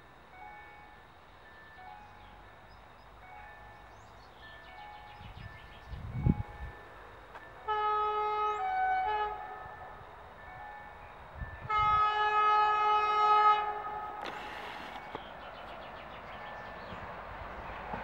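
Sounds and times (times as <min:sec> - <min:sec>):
rush of oncoming train: 0:00.0 - 0:18.0
locomotive horn blasts: 0:07.6 - 0:09.8, 0:11.6 - 0:15.0.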